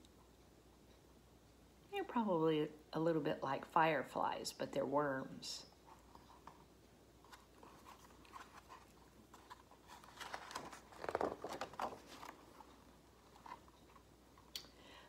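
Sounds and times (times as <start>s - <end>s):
book page rustling: 5.9s - 14.1s.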